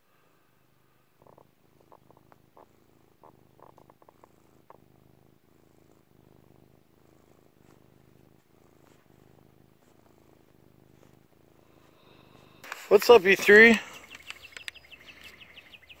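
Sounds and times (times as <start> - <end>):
cat purring: 0.0 - 16.0
soft clicks: 13.9 - 15.4.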